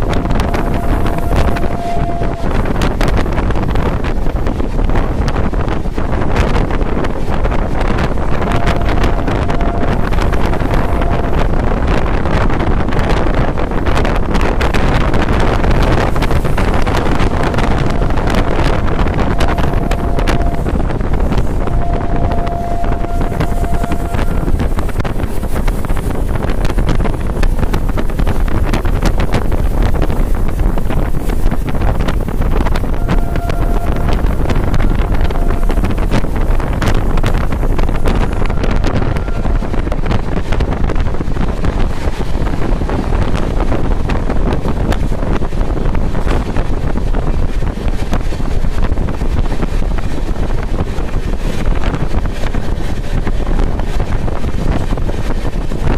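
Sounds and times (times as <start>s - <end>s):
train rumble and wind rush: 0.0s - 55.9s
faint high tone: 0.4s - 2.6s, 19.2s - 20.6s, 21.7s - 24.6s, 33.0s - 35.8s.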